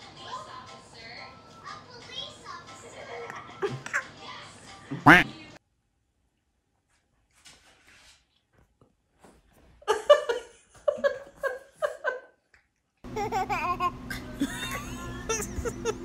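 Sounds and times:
high-pitched laughter: 13.1 - 16.0.

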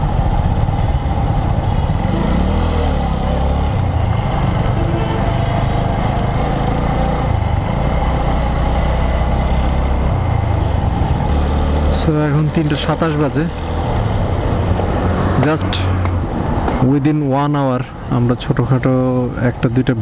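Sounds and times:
motorcycle engine running: 0.0 - 15.2
road and wind noise: 0.0 - 20.0.

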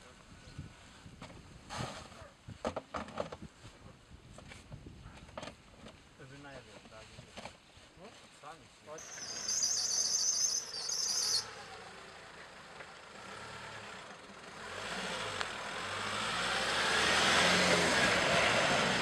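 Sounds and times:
high fluttering trill: 9.0 - 11.8
tyres on gravel: 9.0 - 11.8
pickup truck engine passing: 9.1 - 19.0.

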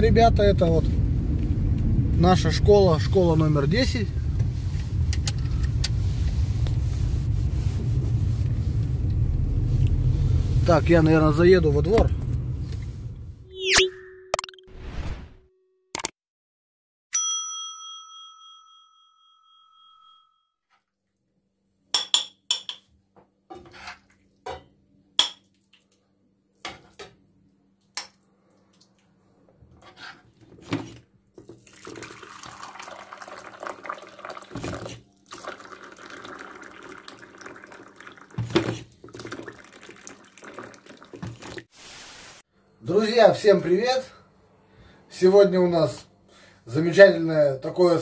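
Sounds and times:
bell chime ding: 17.1 - 20.4
spoon scraping pan and plate: 23.5 - 24.1
hot water pouring into cup: 31.5 - 41.7.

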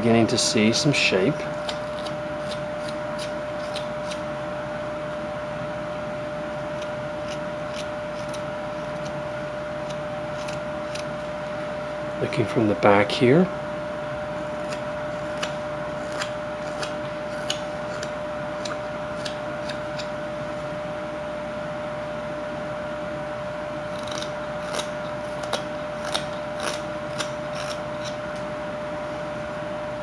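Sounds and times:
steady hum: 0.0 - 30.0
knife cutting wood shavings: 1.4 - 4.3, 6.7 - 9.2, 9.8 - 11.5, 14.6 - 20.1, 23.9 - 28.5.

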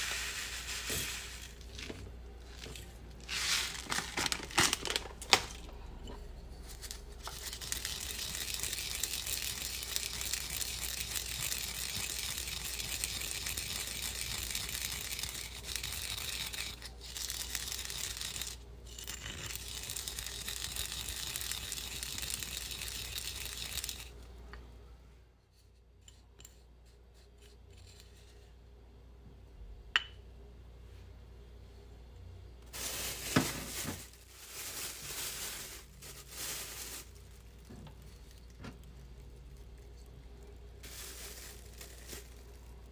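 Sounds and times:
seeds ground with a pestle: 6.2 - 24.1.

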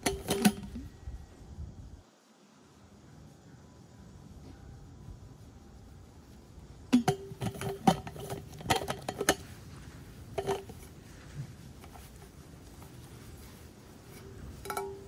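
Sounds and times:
metal bottle and lid clinking: 0.0 - 0.8, 6.9 - 9.5, 10.3 - 10.9, 14.1 - 15.0.

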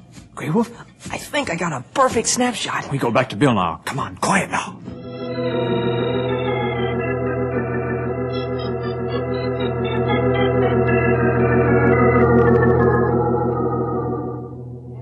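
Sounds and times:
organ music: 4.8 - 15.0.

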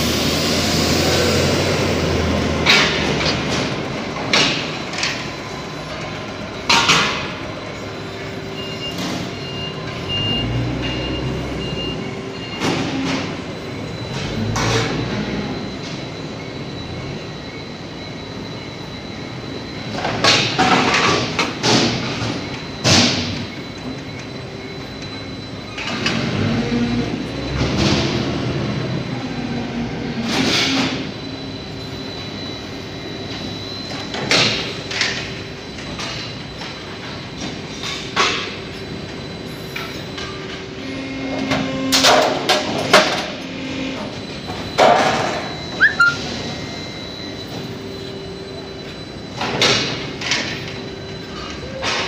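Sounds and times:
short rising squeak: 45.4 - 47.0.

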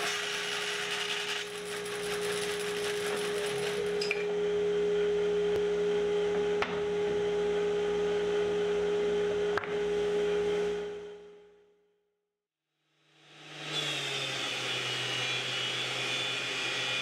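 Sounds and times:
bandsaw cutting wood: 0.0 - 4.0, 13.2 - 17.0
bandsaw running hum: 0.0 - 5.5, 13.0 - 17.0.

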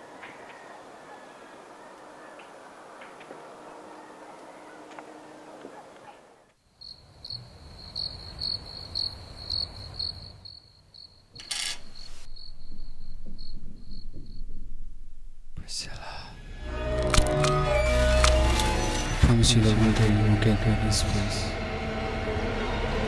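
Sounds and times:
cricket chirping: 6.6 - 14.7.

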